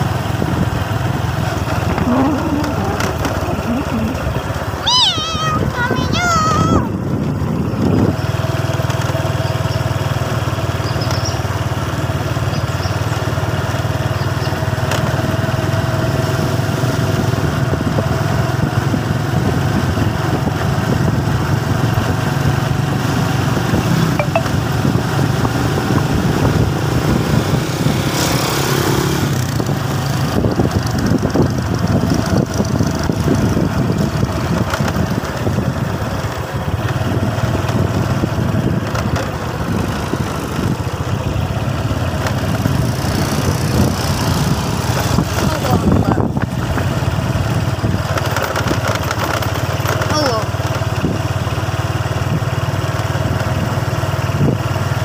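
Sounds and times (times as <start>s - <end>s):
rush of air and road noise: 0.0s - 55.0s
small motorcycle engine running: 0.0s - 55.0s.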